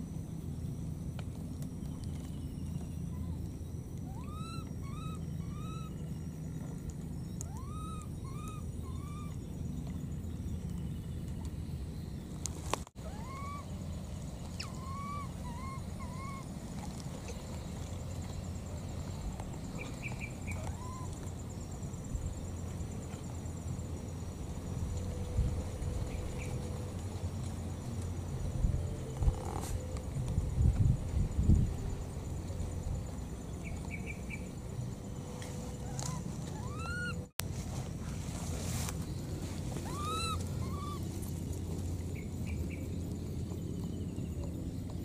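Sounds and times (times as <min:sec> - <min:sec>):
low background rumble: 0:00.0 - 0:45.0
baby monkey cooing: 0:04.1 - 0:05.9, 0:07.4 - 0:09.4, 0:13.0 - 0:13.7, 0:14.5 - 0:16.5, 0:20.5 - 0:21.2, 0:35.8 - 0:37.3, 0:39.8 - 0:41.2.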